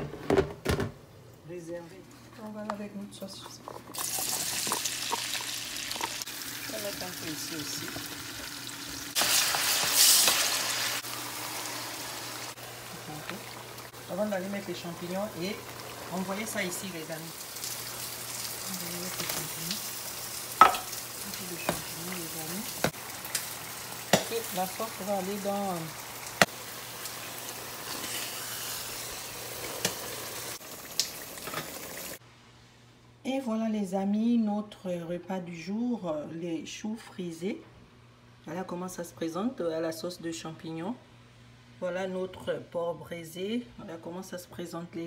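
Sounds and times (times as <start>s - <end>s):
onions sizzling in oil: 4.0s - 32.2s.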